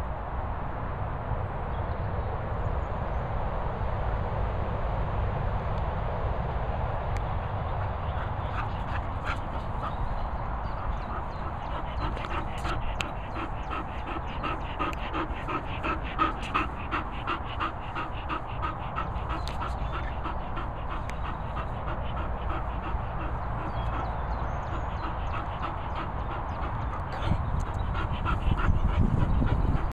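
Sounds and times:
dog panting: 7.2s - 29.9s.

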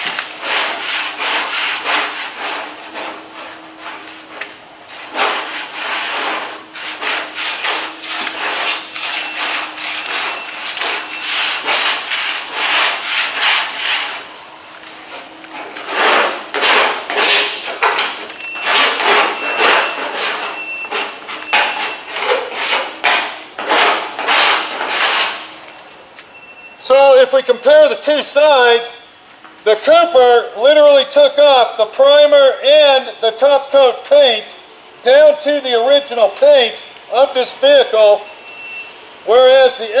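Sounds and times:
scraper blade scraping paint off metal: 0.0s - 14.3s, 15.0s - 25.5s.

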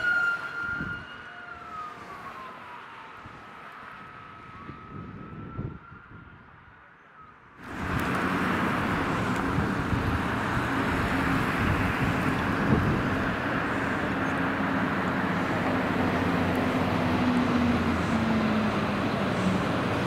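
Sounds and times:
fire truck engine drone: 0.0s - 6.9s, 7.6s - 20.0s
road traffic hiss: 7.6s - 20.0s.

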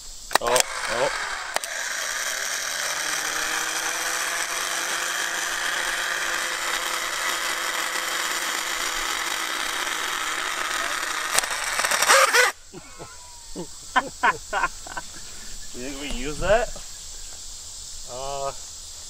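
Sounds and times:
starter motor electric whine: 0.0s - 12.6s.

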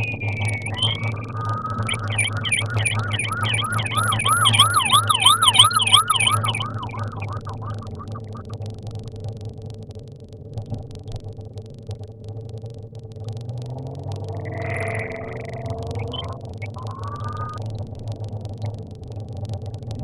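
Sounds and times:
police siren yelping: 1.3s - 8.1s.

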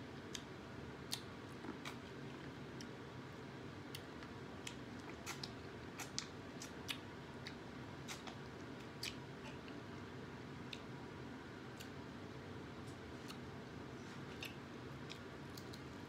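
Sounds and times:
chewing corn on the cob: 3.9s - 9.8s.

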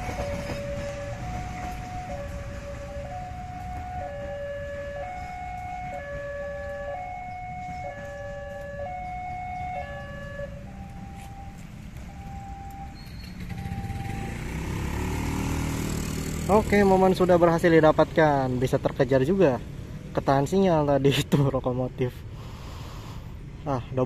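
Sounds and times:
two-tone crossing alarm chime: 0.0s - 14.6s
low engine rumble: 0.0s - 20.9s.

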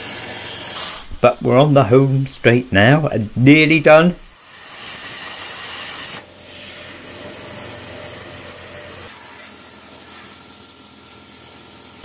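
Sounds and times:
plasma cutter hissing: 0.0s - 12.0s.

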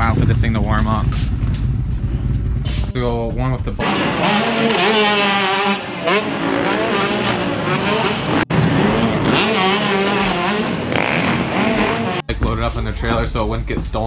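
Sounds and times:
dirt bike engine revving: 3.6s - 12.3s.

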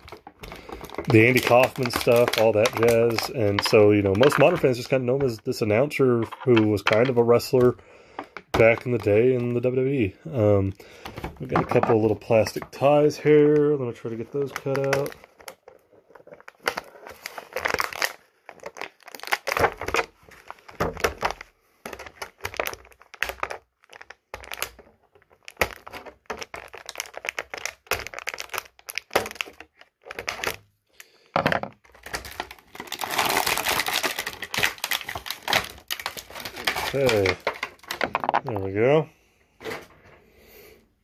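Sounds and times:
plastic ties being cut: 0.0s - 5.4s
plastic packaging crinkling: 0.0s - 31.1s, 31.8s - 38.8s.

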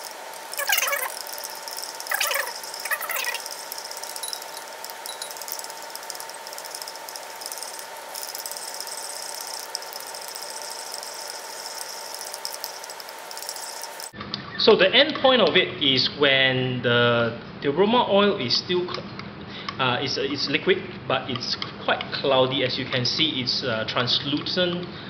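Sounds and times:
faint constant tone: 0.0s - 14.1s
glass beaker squeaking: 0.0s - 14.1s
steady hiss: 0.0s - 14.1s.

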